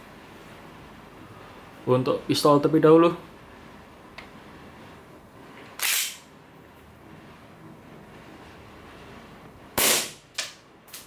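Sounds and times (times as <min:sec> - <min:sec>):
low room hiss: 0:00.0 - 0:11.0
airsoft pistol shot: 0:09.8 - 0:10.6.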